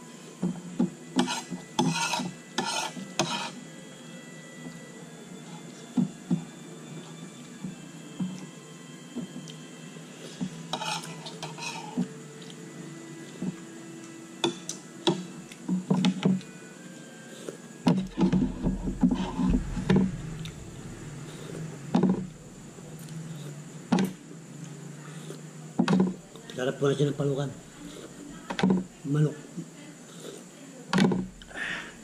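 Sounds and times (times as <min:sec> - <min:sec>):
steady low hum: 0:17.9 - 0:25.7, 0:27.5 - 0:28.4.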